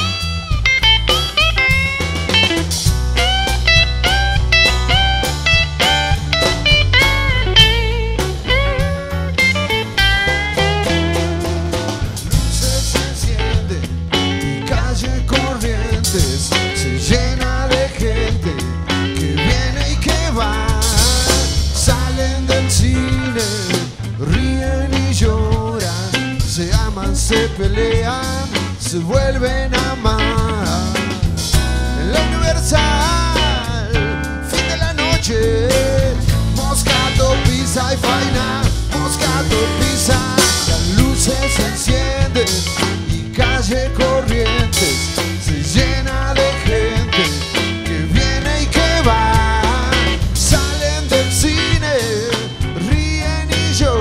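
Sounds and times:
acoustic guitars: 0.0 - 54.0
drum kit: 0.0 - 54.0
rock band playing live: 0.0 - 54.0
man singing into a microphone: 11.3 - 54.0.

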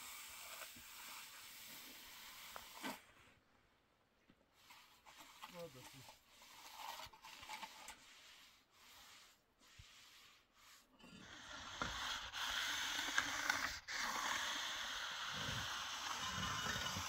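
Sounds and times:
trowel scraping wet mortar: 4.6 - 17.0.

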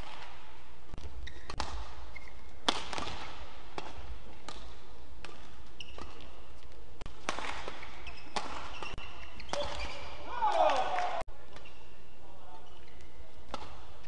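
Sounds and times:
rackets hitting shuttlecock: 0.0 - 11.8, 13.4 - 14.0
shoes squeaking on court: 1.0 - 3.1, 5.2 - 10.3, 11.5 - 13.8.

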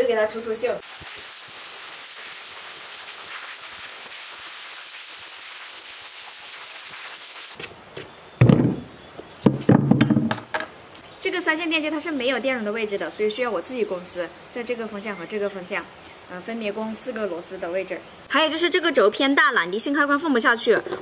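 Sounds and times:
blasting gun hissing: 0.8 - 7.6
metal parts knocking on table: 9.5 - 10.7.

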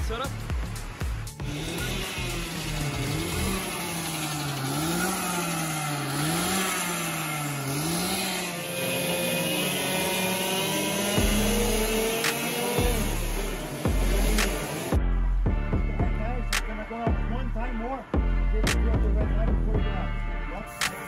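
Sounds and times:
go-kart engines revving: 0.0 - 15.0
loud low engine sound: 0.0 - 15.0
steady engine tone: 0.0 - 18.3.

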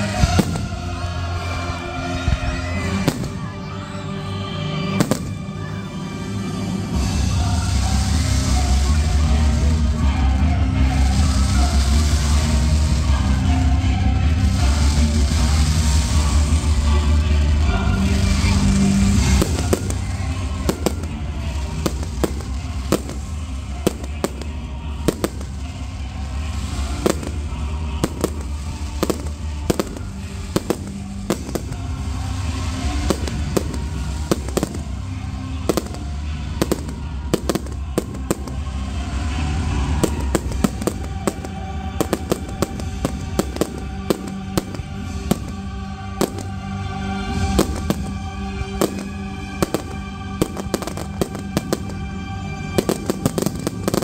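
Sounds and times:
fireworks bangs: 0.0 - 54.0
music playing: 0.0 - 54.0.

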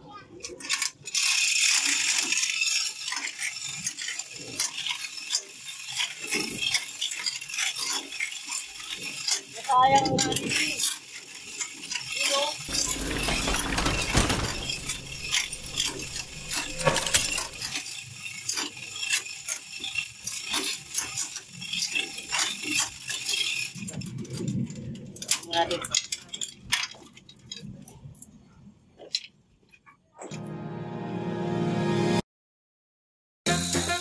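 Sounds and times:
chain hoist chain clinking: 0.4 - 27.0
metal knocks of swinging engine: 12.7 - 17.8.

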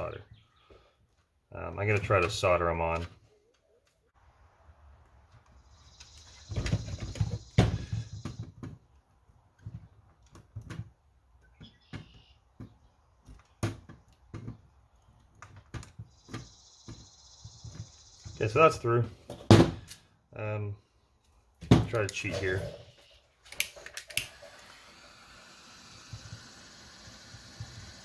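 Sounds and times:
thumps: 6.3 - 8.9.

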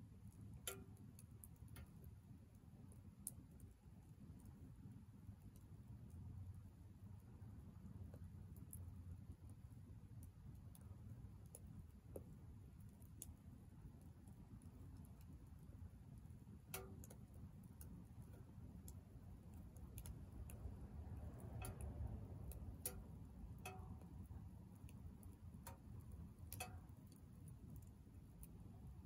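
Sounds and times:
stove low rumble: 0.0 - 29.0
wood fire crackling: 9.4 - 29.0.

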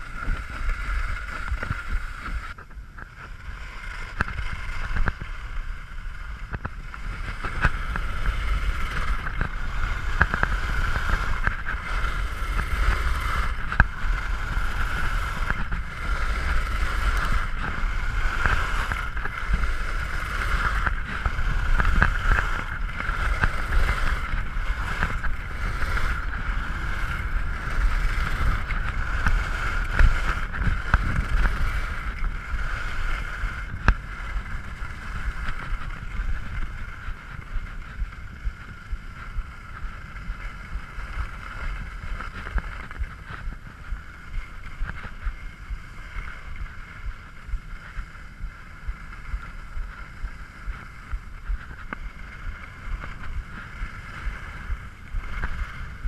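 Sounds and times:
skis sliding on snow: 0.0 - 56.0
wind rushing over microphone: 0.0 - 56.0
small regular ticks: 6.4 - 43.5.

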